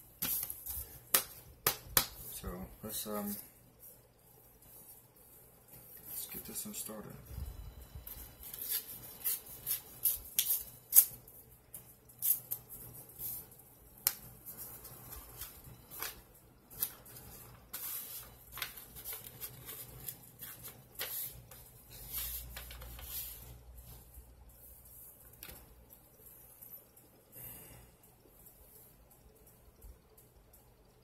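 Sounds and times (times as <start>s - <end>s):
paper crinkling and rustling: 14.5s - 23.5s.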